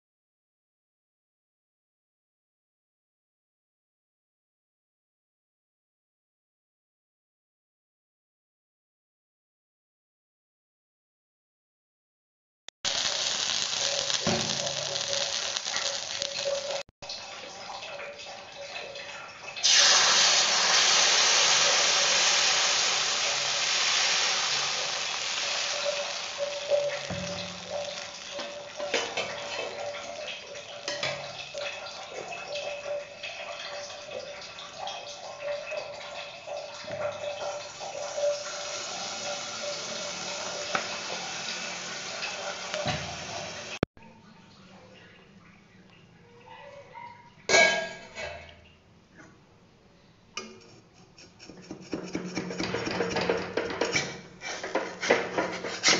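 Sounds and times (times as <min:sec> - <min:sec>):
batter sizzling in a pan: 0:12.8 - 0:16.9, 0:19.6 - 0:34.1, 0:36.3 - 0:43.8, 0:50.4 - 0:55.9
utensils knocking on pan: 0:13.8 - 0:16.8, 0:25.8 - 0:31.6, 0:50.4 - 0:55.9.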